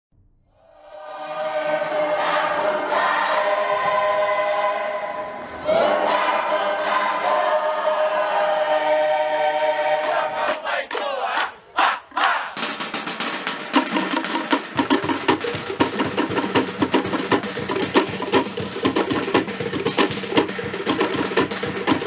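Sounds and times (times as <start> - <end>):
choir singing in harmony: 0.6 - 12.6.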